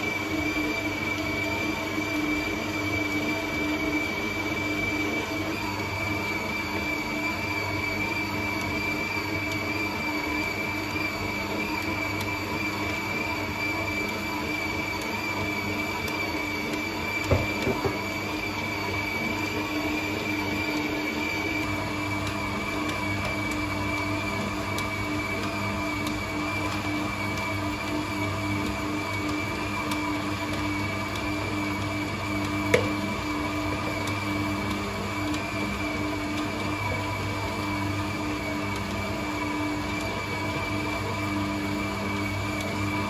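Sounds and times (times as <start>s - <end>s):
stand mixer motor whining: 0.0s - 43.0s.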